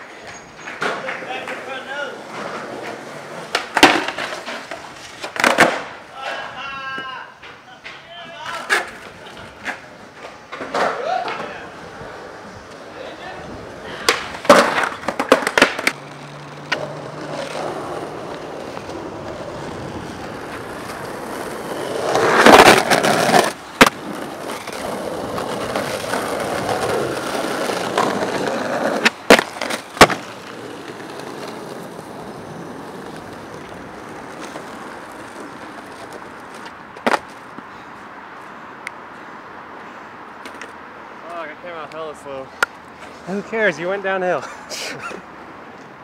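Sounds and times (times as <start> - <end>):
skateboard grinding scrape: 0.0 - 6.0, 11.7 - 37.4
skateboard clacks: 0.0 - 6.4, 13.8 - 37.6
skateboard wheels rolling on pavement: 0.0 - 46.0.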